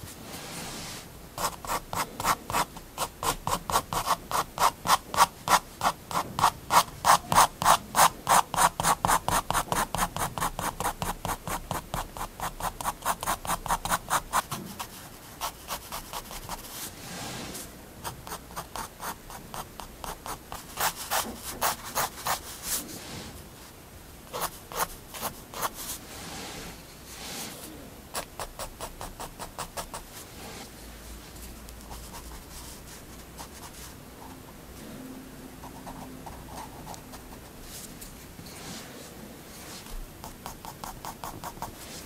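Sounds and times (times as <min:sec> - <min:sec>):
pen scratching on paper: 0:01.4 - 0:17.3, 0:18.0 - 0:22.8, 0:24.3 - 0:26.3, 0:28.2 - 0:30.1, 0:39.7 - 0:42.0.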